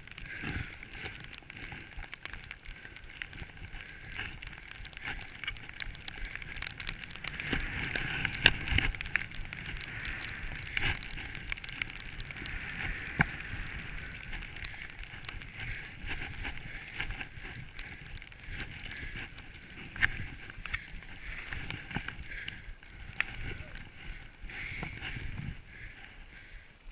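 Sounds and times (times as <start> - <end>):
skis hissing through powder snow: 7.3 - 25.9.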